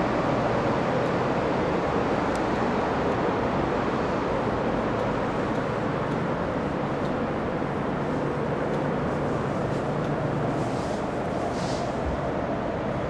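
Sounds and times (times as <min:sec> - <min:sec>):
distant road traffic hum: 0:00.0 - 0:13.0.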